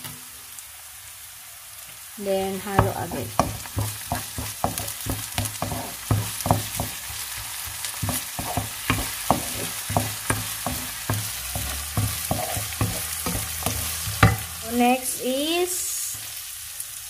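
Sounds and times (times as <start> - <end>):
garlic and onion sizzling in oil: 0.0 - 17.0
wooden spatula scraping a wok: 2.7 - 14.8.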